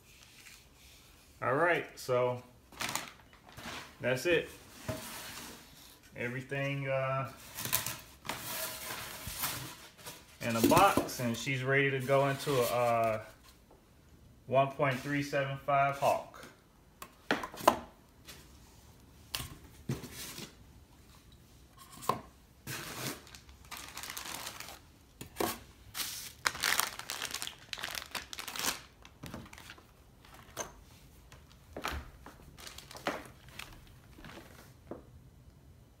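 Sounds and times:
plastic bags crinkling: 2.7s - 3.9s, 22.7s - 24.9s, 25.9s - 30.6s, 31.3s - 34.6s.

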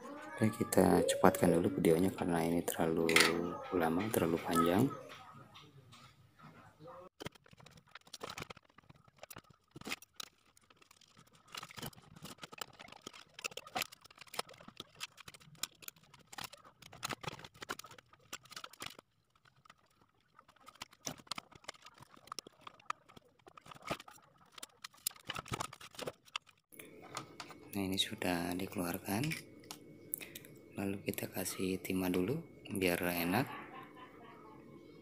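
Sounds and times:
clicking and rattling of parts: 7.2s - 27.6s.

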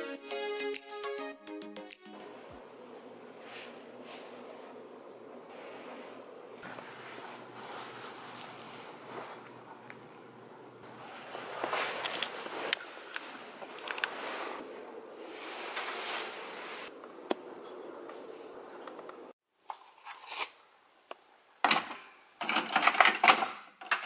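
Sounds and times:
rustling and handling noise: 2.2s - 20.6s.

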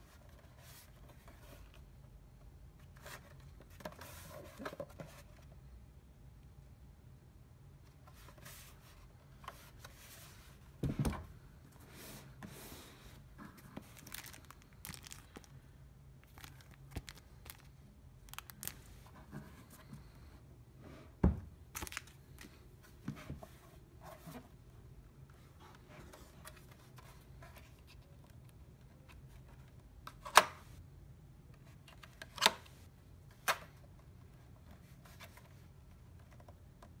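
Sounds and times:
plastic bag rustling: 13.6s - 15.6s, 16.2s - 19.2s, 21.7s - 22.5s.

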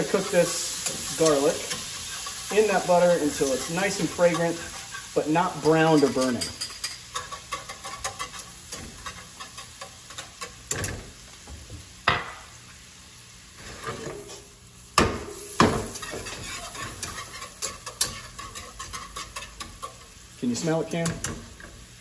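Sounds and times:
garlic sizzling in butter: 0.0s - 22.0s
utensil scraping and tapping pan: 5.6s - 11.0s, 15.6s - 21.8s
whisk clicking against pan: 5.8s - 10.6s, 16.0s - 20.0s.

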